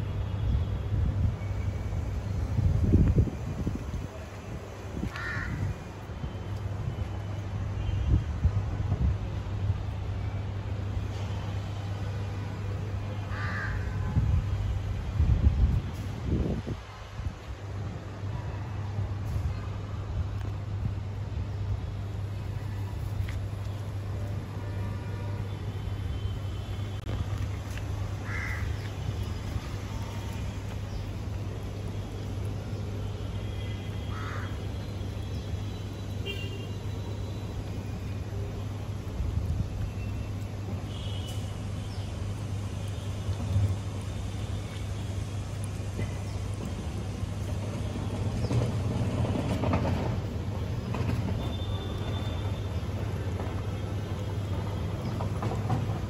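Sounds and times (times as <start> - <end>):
vehicle engine rumble: 14.0 - 56.0.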